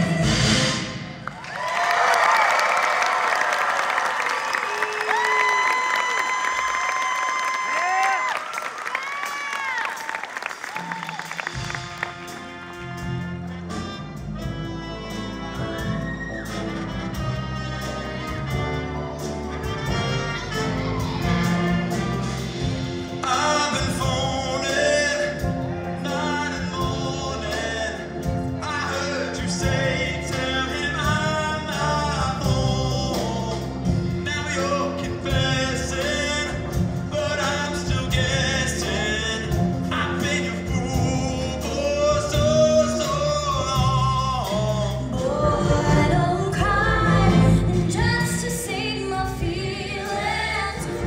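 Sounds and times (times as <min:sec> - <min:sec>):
instrumental accompaniment: 0:10.6 - 0:51.0
choir singing: 0:44.4 - 0:48.2, 0:48.8 - 0:51.0.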